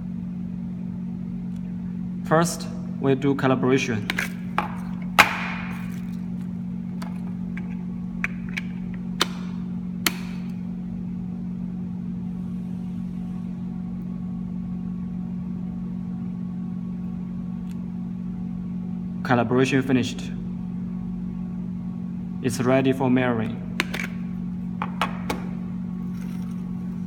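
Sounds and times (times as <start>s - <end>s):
low hum: 0.0s - 19.6s.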